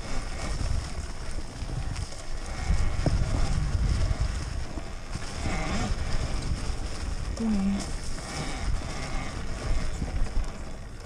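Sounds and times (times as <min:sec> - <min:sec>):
electric dirt bike rumble: 0:00.0 - 0:11.0
wind buffeting microphone: 0:00.0 - 0:11.0.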